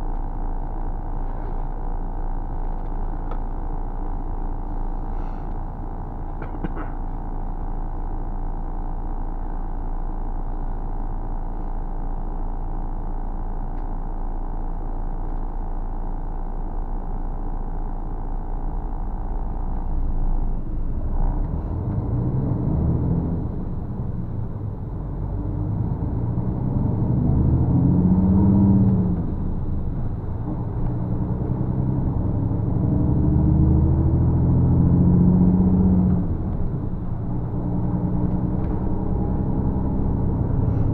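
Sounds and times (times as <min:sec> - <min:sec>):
engine revving through gears: 0:20.8 - 0:40.9.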